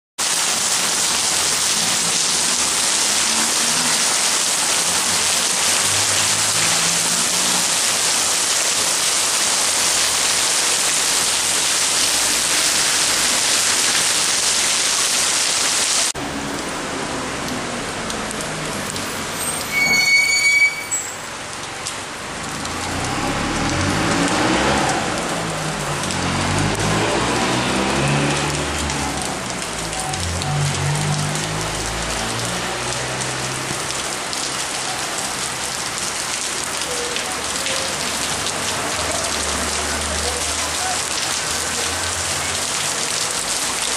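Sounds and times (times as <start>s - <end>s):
heavy rain pouring: 0.2s - 43.9s
high-pitched squeak: 19.2s - 21.3s.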